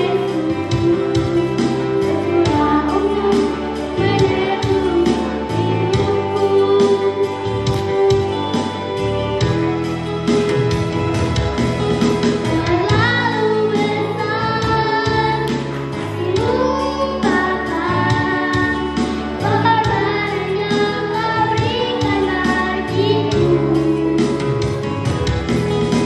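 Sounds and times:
girl singing into microphone: 0:00.0 - 0:08.5, 0:12.4 - 0:24.9
karaoke backing track: 0:00.0 - 0:26.0.

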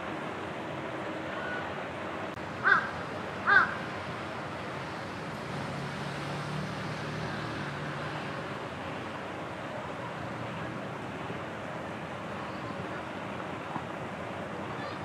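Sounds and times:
crow cawing: 0:02.6 - 0:03.8.

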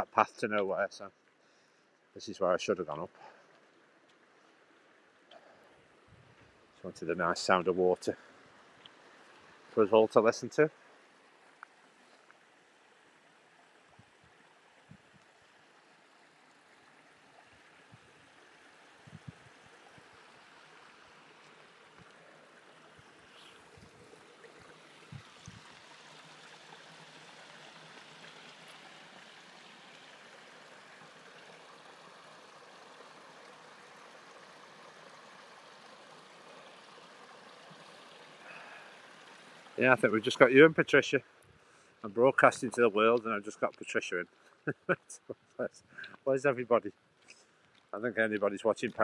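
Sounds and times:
stream trickling over stones: 0:00.0 - 0:49.0.

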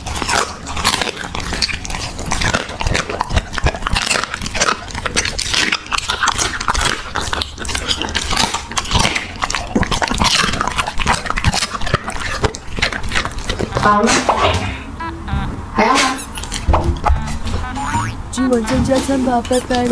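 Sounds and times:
dog licking wooden board: 0:00.0 - 0:14.0
dog wet chewing: 0:00.0 - 0:14.2, 0:16.2 - 0:17.7.

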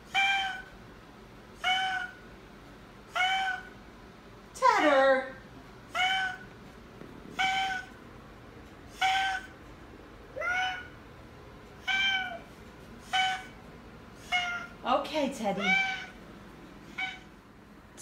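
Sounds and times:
cat honking: 0:01.6 - 0:02.2, 0:03.1 - 0:03.8, 0:05.9 - 0:06.5, 0:07.3 - 0:08.0, 0:08.9 - 0:09.6, 0:10.4 - 0:11.0, 0:11.8 - 0:12.4, 0:14.2 - 0:14.8, 0:15.6 - 0:16.2.

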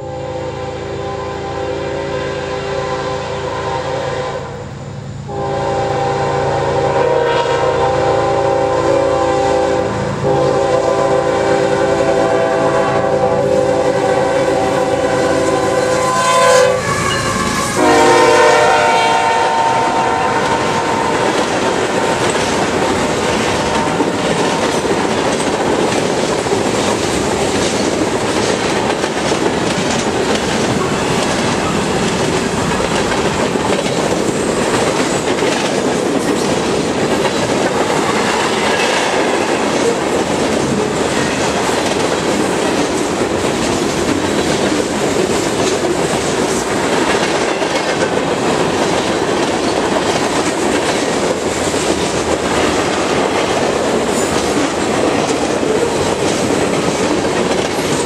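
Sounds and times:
locomotive air horn blasts: 0:00.0 - 0:04.7, 0:05.3 - 0:22.3
train wheels clickety-clack: 0:17.0 - 0:58.0.

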